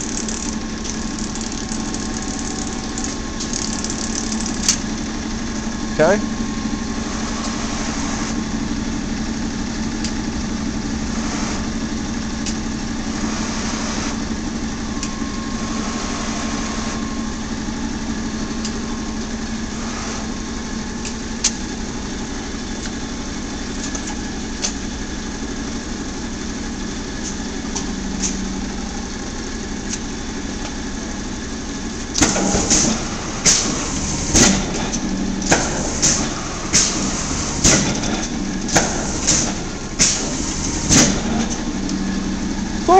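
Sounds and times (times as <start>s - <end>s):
press brake motor humming: 0.0s - 42.9s
sharp metallic clanks and knocks: 32.2s - 41.7s.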